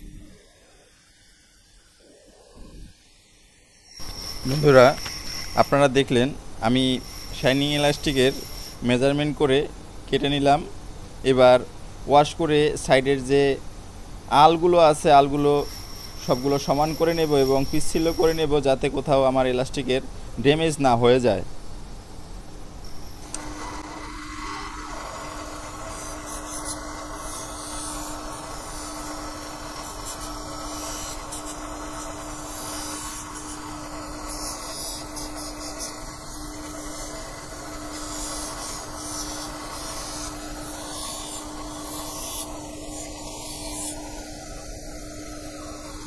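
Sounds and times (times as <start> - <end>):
metal grinding hiss: 0.0 - 13.6, 14.2 - 21.4, 22.8 - 46.0
bench grinder motor hum: 3.9 - 10.5, 14.3 - 19.2, 22.8 - 46.0.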